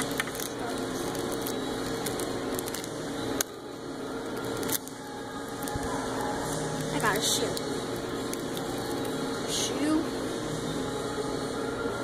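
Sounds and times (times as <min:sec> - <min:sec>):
plastic wrappers crinkling: 0:00.0 - 0:09.2.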